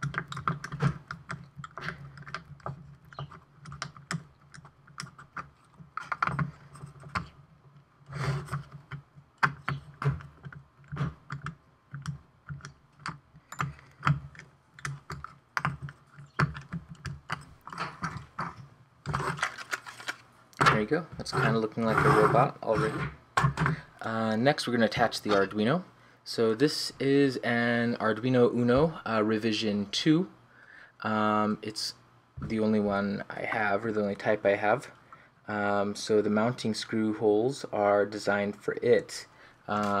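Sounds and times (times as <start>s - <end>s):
screwdriver and chassis clicking and knocking: 0.0s - 7.8s, 8.5s - 19.8s.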